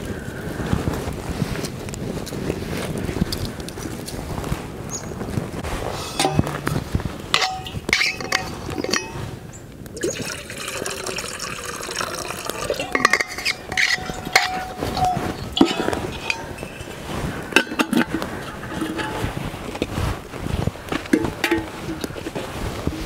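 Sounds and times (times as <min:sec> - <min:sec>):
bottle and pot knocking: 0:07.3 - 0:09.2, 0:10.0 - 0:16.9, 0:21.1 - 0:22.1
water pouring into pot: 0:10.0 - 0:16.4.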